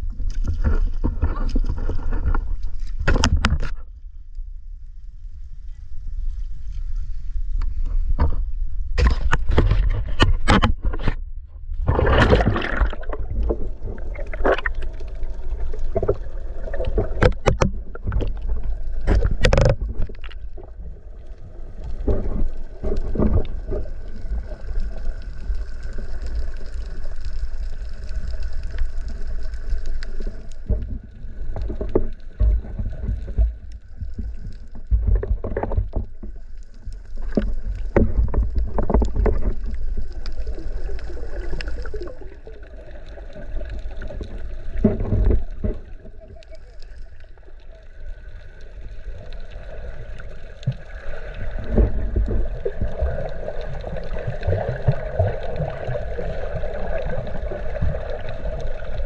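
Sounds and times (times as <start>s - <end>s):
water splashes: 11.8s - 59.0s.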